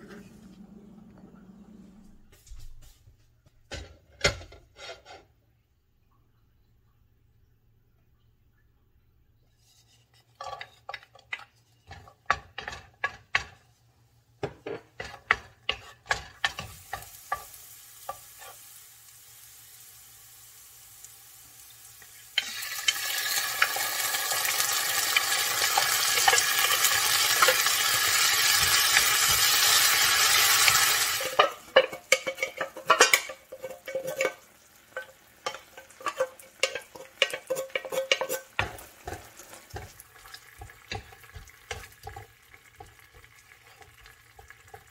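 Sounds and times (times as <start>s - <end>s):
spatula scraping frying pan: 3.7s - 5.4s, 9.5s - 13.7s, 14.5s - 18.8s, 22.3s - 44.9s
garlic frying quietly in oil: 3.7s - 44.9s
loud sizzle in hot oil: 15.4s - 44.9s.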